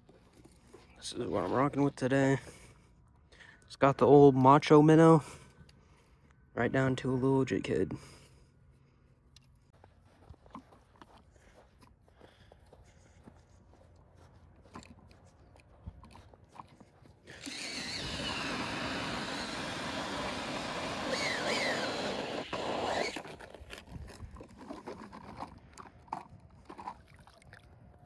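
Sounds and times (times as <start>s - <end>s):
cordless drill driving ice auger: 17.2s - 27.0s.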